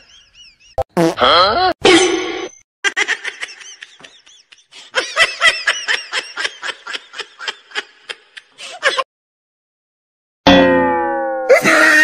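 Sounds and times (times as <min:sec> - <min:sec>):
person laughing: 0:02.9 - 0:09.0, 0:11.5 - 0:12.0.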